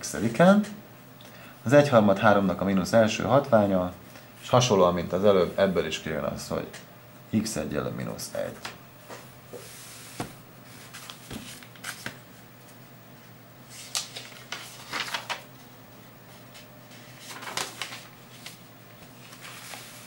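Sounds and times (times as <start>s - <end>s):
paper rustling: 9.6s - 12.4s, 13.7s - 15.7s, 16.3s - 20.0s.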